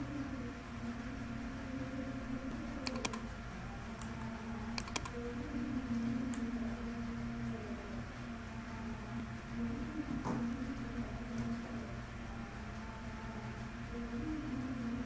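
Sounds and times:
steady low hum: 0.0 - 15.0
keyboard and mouse clicks: 2.8 - 3.2, 4.0 - 5.2.

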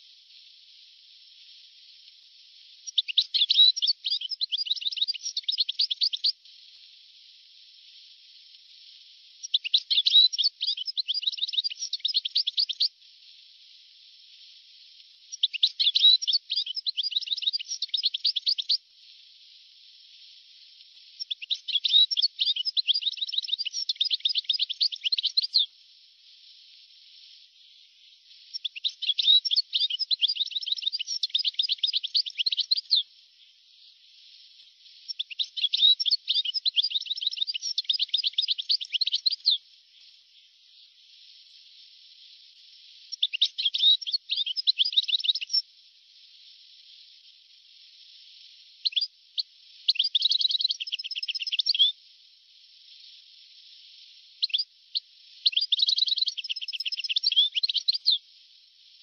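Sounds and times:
faint tape hiss: 0.0 - 59.0
goldfinch singing: 2.8 - 6.4, 9.4 - 12.9, 15.3 - 18.8, 21.2 - 25.7, 28.5 - 33.0, 35.1 - 39.6, 43.1 - 45.6, 48.8 - 51.9, 54.4 - 58.2.

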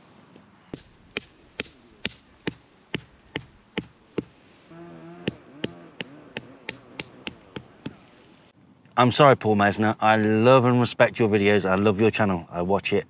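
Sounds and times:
low wavering hum: 0.0 - 8.6.

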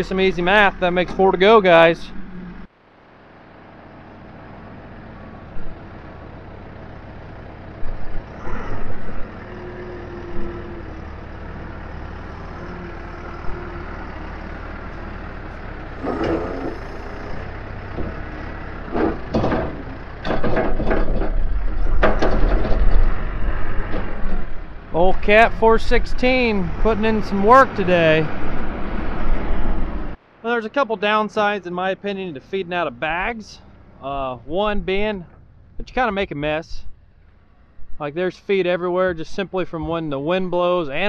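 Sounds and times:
diesel engine under load: 0.0 - 41.0
sharp knocks and clatters: 18.9 - 23.2.

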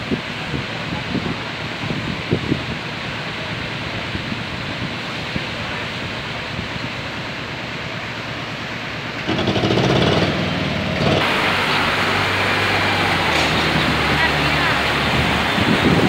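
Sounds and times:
water splashing down fountain: 0.0 - 16.0
street traffic: 5.4 - 16.0
vehicle engine running close by: 8.2 - 16.0.

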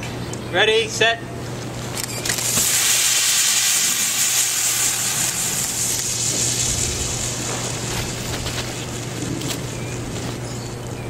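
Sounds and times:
soda jets spraying hiss: 2.4 - 9.1.

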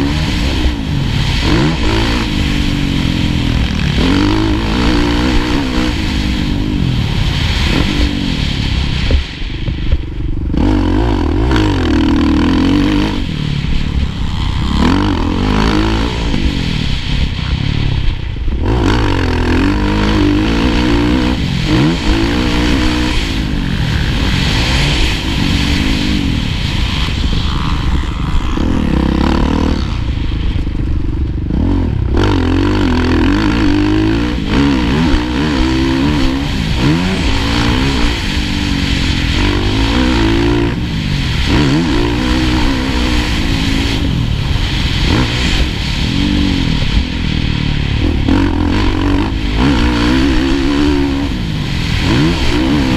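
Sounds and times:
motocross engine revving: 0.0 - 52.9
wind on microphone: 0.0 - 52.9.

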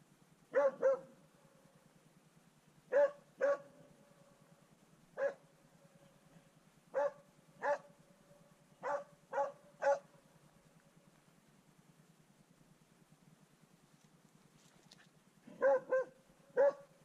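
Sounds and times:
dog barking: 0.5 - 1.2, 2.9 - 3.9, 5.2 - 5.4, 6.9 - 7.9, 8.8 - 10.2, 15.5 - 17.0.

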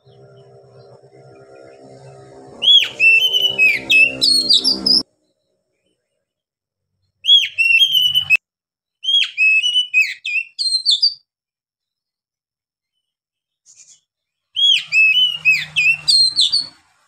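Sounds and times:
bird singing whistled phrases: 2.6 - 5.0, 7.2 - 8.4, 9.0 - 11.2, 14.6 - 16.8.

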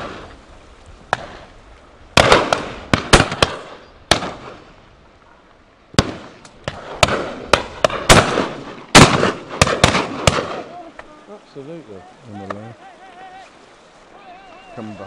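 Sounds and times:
shotguns firing with echo: 2.2 - 4.6, 6.0 - 10.7.

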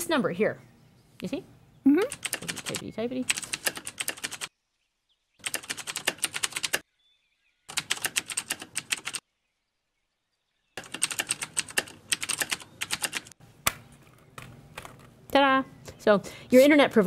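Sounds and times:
computer keyboard typing: 2.1 - 4.5, 5.4 - 6.8, 7.7 - 9.2, 10.8 - 13.4.

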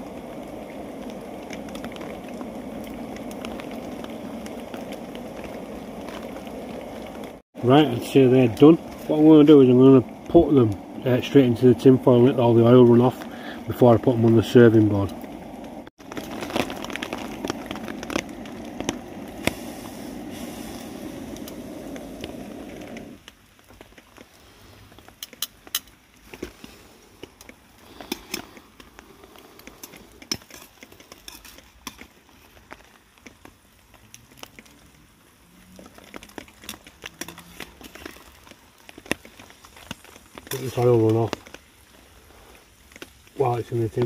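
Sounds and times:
faint crackles and pops: 0.0 - 44.0
hot oil bubbling: 0.0 - 44.0.

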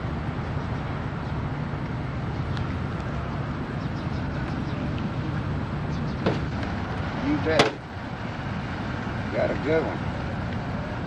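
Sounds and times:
bus engine rumbling: 0.0 - 11.0.

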